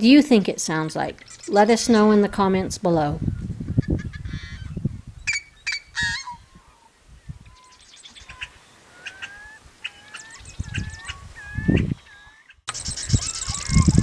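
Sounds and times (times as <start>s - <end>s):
bird chattering notes: 1.0s - 2.4s, 7.5s - 14.0s
harsh rasping bird calls: 1.1s - 2.4s, 3.4s - 14.0s.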